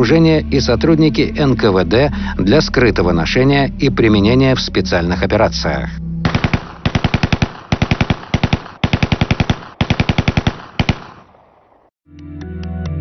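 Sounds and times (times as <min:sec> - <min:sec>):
gunfire echo: 0:06.2 - 0:11.9
automatic weapon bursts: 0:06.3 - 0:11.2.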